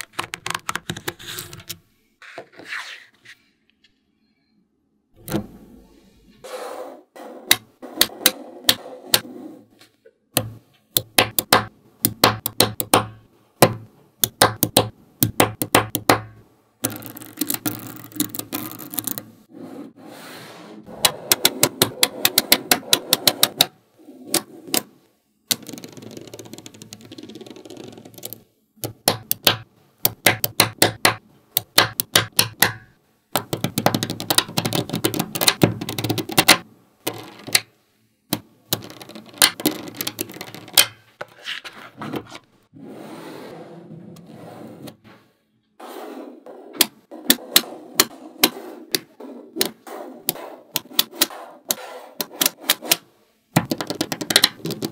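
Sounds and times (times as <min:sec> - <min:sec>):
magnetic balls clicking together: 0:10.4 - 0:13.3, 0:14.2 - 0:19.3, 0:25.5 - 0:37.7, 0:38.3 - 0:41.0, 0:48.9 - 0:53.0, 0:53.6 - 0:54.9.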